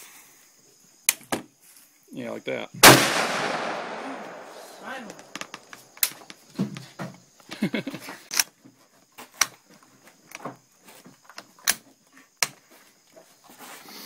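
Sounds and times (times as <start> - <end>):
rifle bolt clicks and knocks: 5.1 - 6.2.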